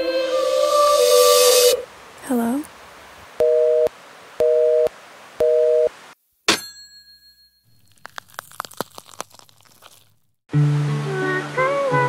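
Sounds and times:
telephone busy signal beeps: 3.4s - 5.9s
crackling clicks: 7.8s - 10.3s.

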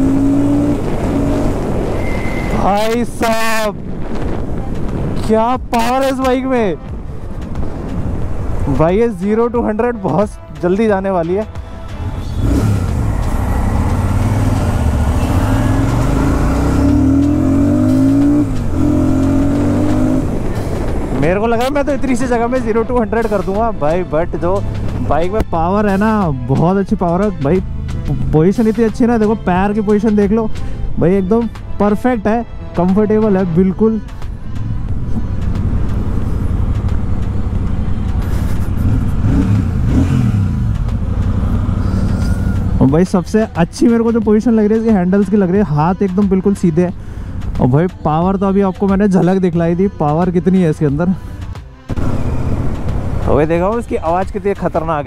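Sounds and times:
motorcycle engine accelerating: 0.0s - 2.6s, 12.2s - 21.3s, 34.6s - 42.9s, 51.9s - 53.7s.

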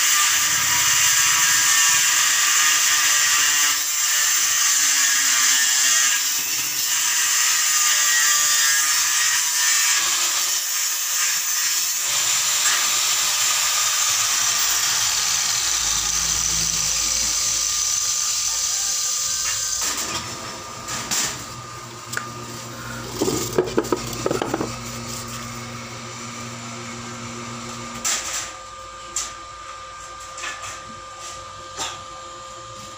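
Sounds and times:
angle grinder grinding steel: 0.0s - 26.0s.

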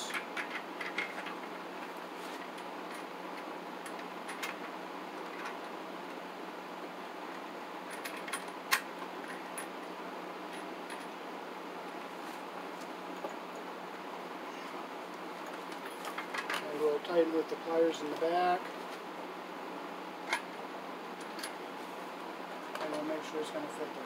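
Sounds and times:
steady background hiss: 0.0s - 24.0s.

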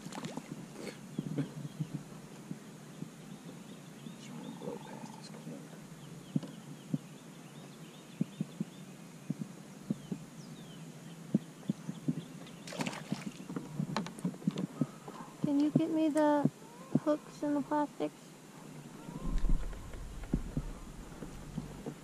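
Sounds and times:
rustling: 19.0s - 22.0s.

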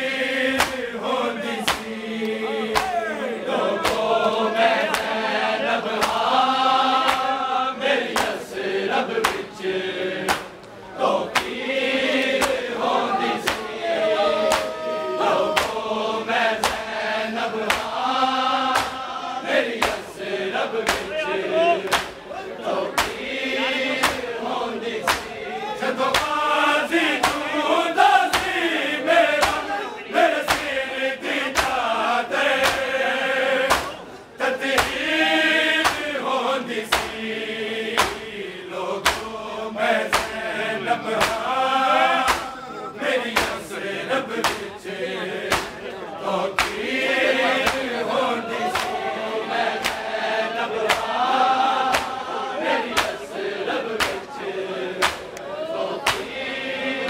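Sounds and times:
men chanting together: 0.0s - 57.0s
hands striking chests: 18.7s - 19.0s, 21.9s - 22.2s, 45.5s - 45.8s, 55.0s - 55.4s.

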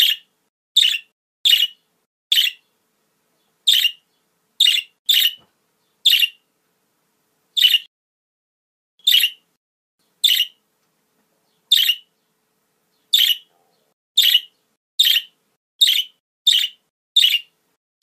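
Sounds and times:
budgerigars harsh calls: 0.8s - 2.6s, 3.7s - 4.0s, 4.6s - 5.4s, 6.0s - 6.4s, 7.6s - 7.9s, 9.0s - 9.4s, 10.2s - 10.6s, 11.7s - 12.1s, 13.1s - 13.5s, 14.2s - 17.5s.

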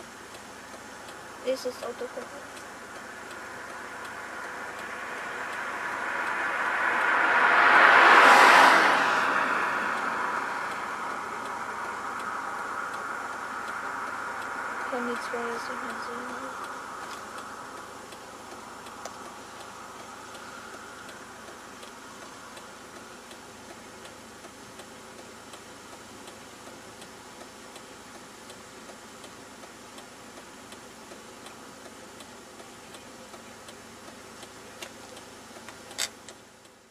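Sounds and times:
faint even ticking: 0.0s - 7.2s, 9.8s - 36.9s
low hum: 0.0s - 27.8s.

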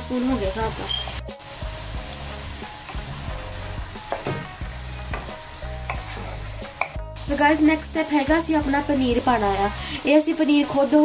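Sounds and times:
vegetables sizzling in sauce: 0.0s - 11.0s
spatula scraping a pan: 2.9s - 7.0s.

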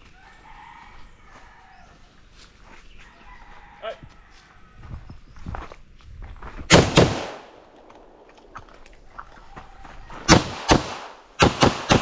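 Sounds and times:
rifle gunshots: 6.7s - 8.4s, 10.3s - 12.0s
pistol shots: 6.7s - 8.5s, 10.3s - 12.0s.

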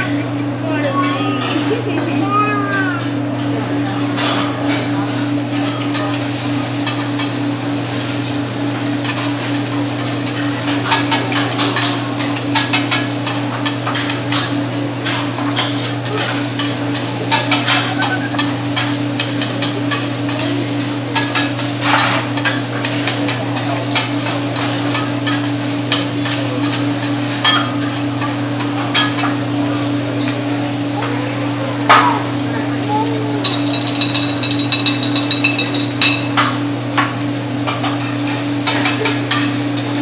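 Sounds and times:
metal spatulas clacking on griddle: 38.6s - 39.6s.

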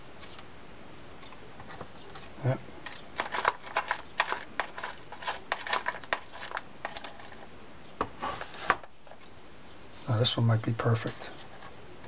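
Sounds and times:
washers rattling in parts bin: 2.8s - 7.4s.

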